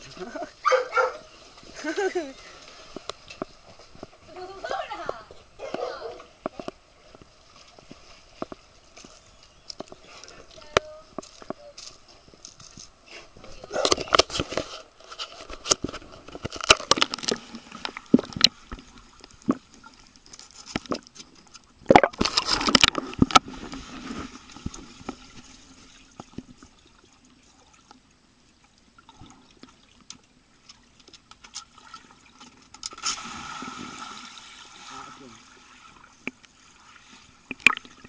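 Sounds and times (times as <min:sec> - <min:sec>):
water splashing against camera: 0:00.0 - 0:27.2, 0:37.2 - 0:38.0.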